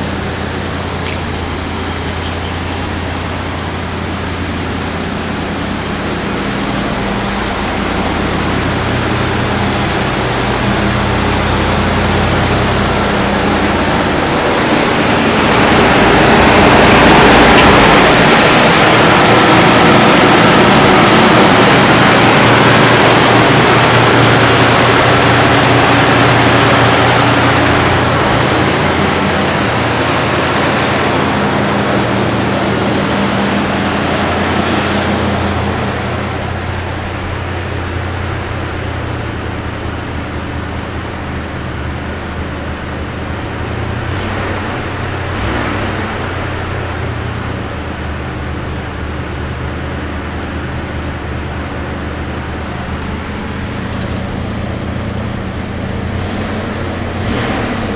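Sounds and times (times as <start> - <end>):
car engine idling: 0.0 - 57.9.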